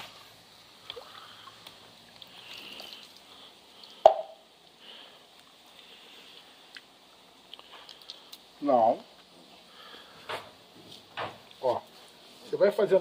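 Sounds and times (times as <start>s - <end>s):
water splashing and dripping: 0.0s - 8.6s
sharp water plop: 4.0s - 4.4s.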